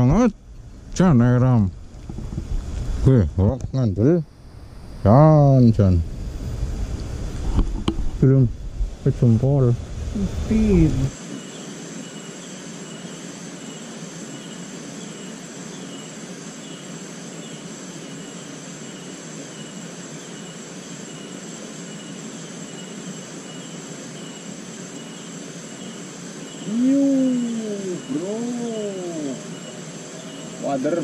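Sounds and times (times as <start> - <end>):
insect chorus: 0.0 - 31.0
regular insect chirp: 0.0 - 31.0
man exclaiming: 26.7 - 29.4.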